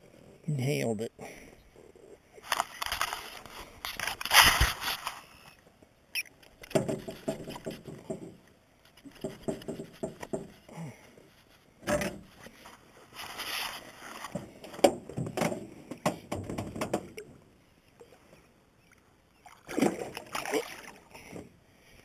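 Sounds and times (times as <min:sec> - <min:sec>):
rustling: 0:02.4 - 0:05.6, 0:08.9 - 0:14.9
sharp knocks in a boat: 0:06.7 - 0:08.4, 0:09.1 - 0:10.6, 0:11.8 - 0:12.3, 0:14.4 - 0:17.2.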